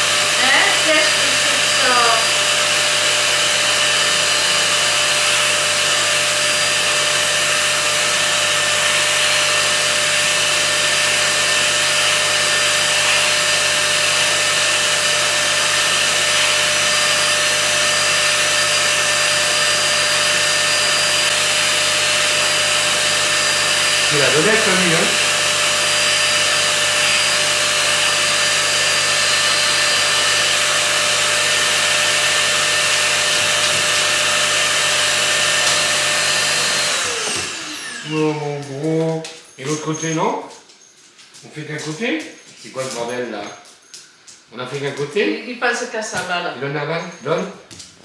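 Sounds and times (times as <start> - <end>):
vacuum motor drone with whine: 0.0 - 38.4.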